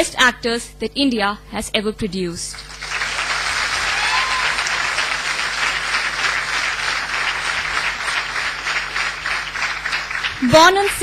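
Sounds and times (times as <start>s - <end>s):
audience applauding: 2.5s - 11.0s.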